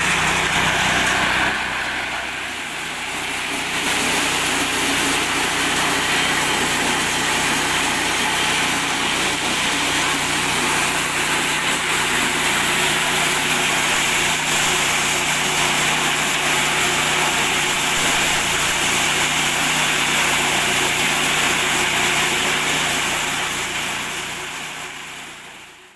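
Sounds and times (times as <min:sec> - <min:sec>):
corn threshing noise: 0:00.0 - 0:25.9
small engine running: 0:00.0 - 0:25.9.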